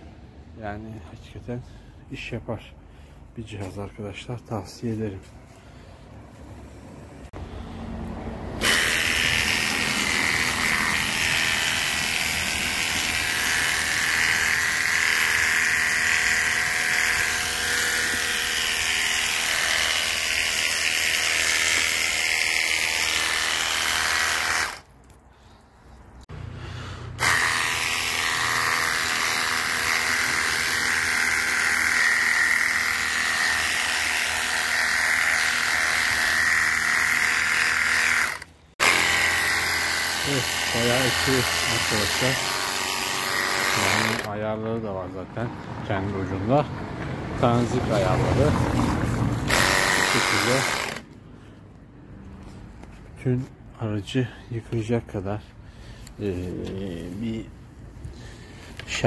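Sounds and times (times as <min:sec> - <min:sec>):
pump motor whining: 0:48.1 - 0:51.0.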